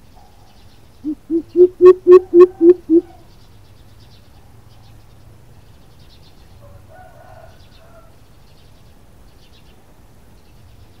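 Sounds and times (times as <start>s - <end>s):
small birds chirping: 0.0s - 6.8s, 7.5s - 11.0s
steady low hum: 1.0s - 3.2s
coucal call: 1.1s - 3.2s.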